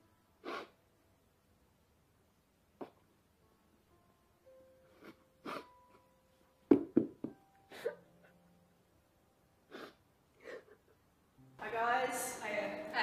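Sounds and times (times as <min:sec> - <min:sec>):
woman sobbing: 0:04.9 - 0:06.2, 0:07.6 - 0:08.5, 0:09.7 - 0:11.1.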